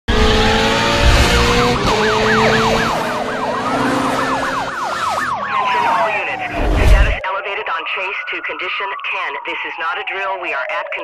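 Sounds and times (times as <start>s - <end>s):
police sirens yelping and wailing: 0.1s - 11.0s.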